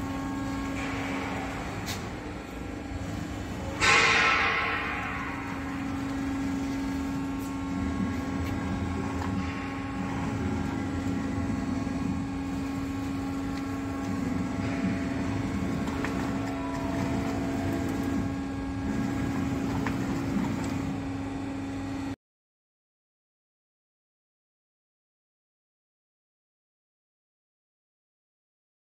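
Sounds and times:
lathe machine humming: 0:00.0 - 0:22.2.

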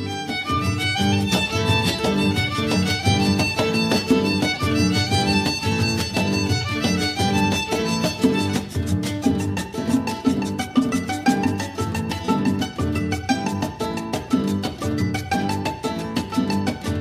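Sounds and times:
instrumental music with rhythmic beat: 0:00.0 - 0:17.0.

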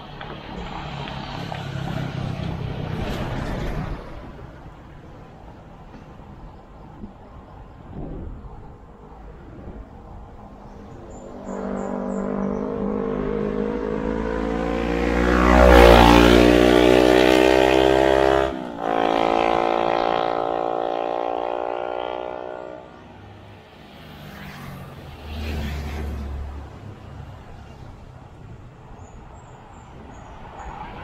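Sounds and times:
vehicle engine passing by: 0:00.0 - 0:04.5, 0:10.9 - 0:31.0
smaller engine: 0:11.1 - 0:23.0.

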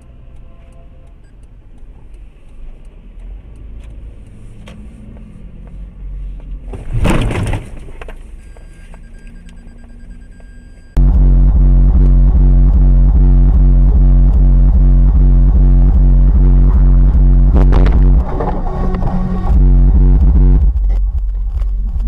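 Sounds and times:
car engine and road rumble: 0:00.0 - 0:22.0
loud sudden noise: 0:11.0 - 0:20.7.

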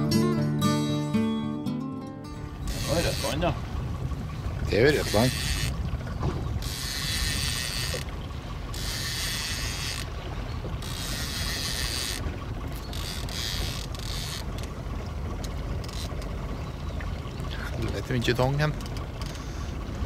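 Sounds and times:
boat motor humming: 0:00.0 - 0:20.0
fishing reel running: 0:02.6 - 0:03.5, 0:04.7 - 0:05.8, 0:06.6 - 0:08.1, 0:08.7 - 0:10.1, 0:10.8 - 0:14.7, 0:18.8 - 0:19.7.

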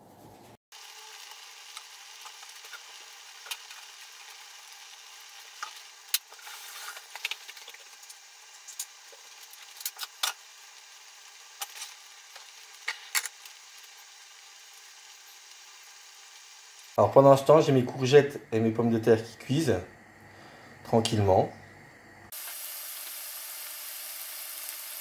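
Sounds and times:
crackles: 0:00.0 - 0:17.0
oil hissing in a frying pan: 0:00.7 - 0:20.9, 0:21.8 - 0:25.0.

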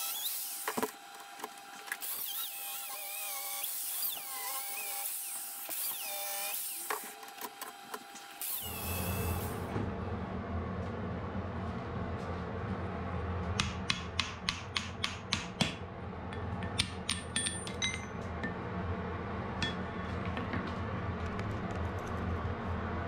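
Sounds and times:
steady low rumble: 0:09.6 - 0:13.8.

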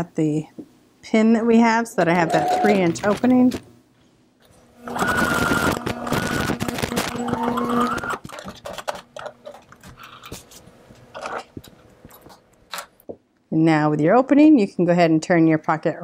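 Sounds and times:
sewing machine stitching: 0:02.0 - 0:03.6, 0:04.8 - 0:09.6.

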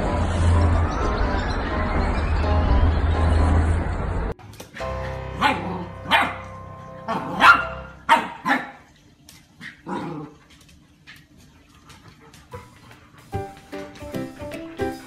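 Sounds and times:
puppy barking: 0:05.3 - 0:08.9.

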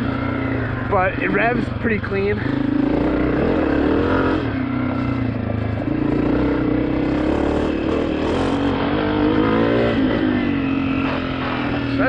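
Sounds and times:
motorcycle engine revving: 0:00.0 - 0:12.0.

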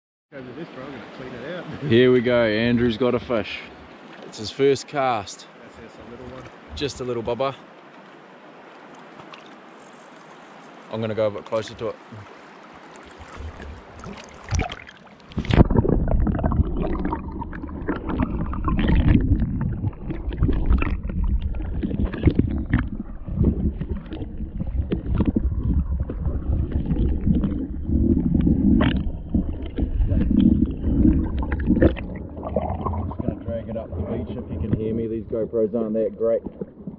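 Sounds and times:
stream water hissing: 0:00.4 - 0:16.0
muffled underwater rumble: 0:15.3 - 0:36.9.

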